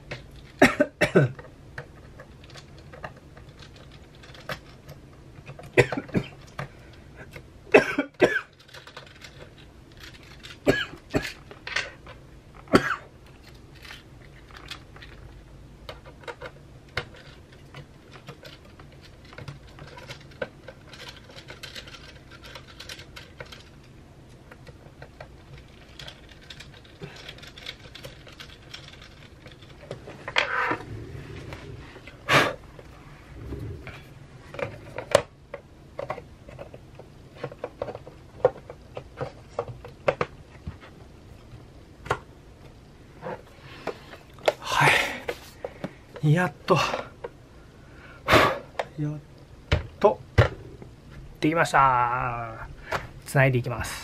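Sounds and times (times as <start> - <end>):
low steady hum: 0.0 - 54.0
metal parts and screws clicking: 15.9 - 23.9.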